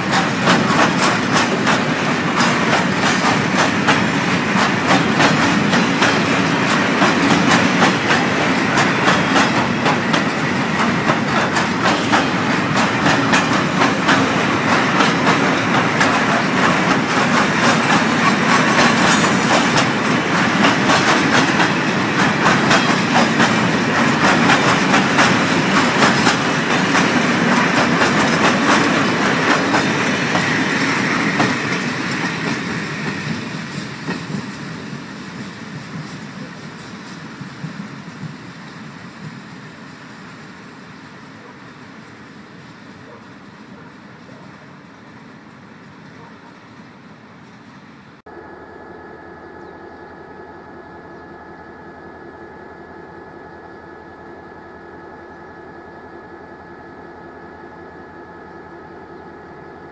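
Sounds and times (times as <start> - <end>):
wheels clattering over rail joints: 0.0 - 38.4
freight train rumble: 0.0 - 59.9.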